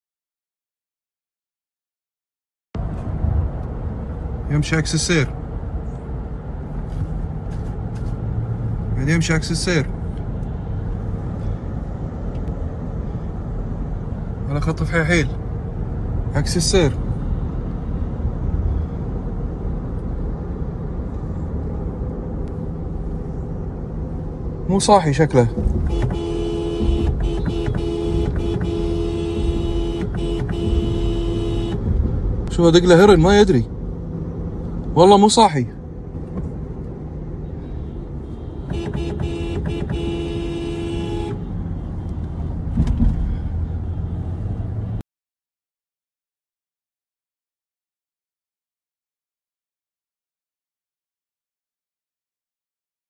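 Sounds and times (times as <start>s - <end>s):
car cabin road rumble: 2.8s - 45.0s
car horn honking: 25.6s - 31.9s, 38.2s - 41.6s.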